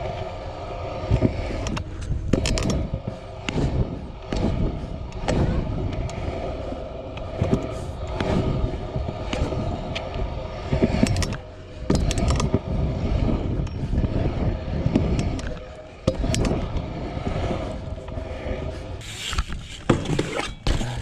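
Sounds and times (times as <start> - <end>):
bike tyres rumbling on concrete: 0.0 - 21.0
sharp knocks and clicks: 1.6 - 2.9.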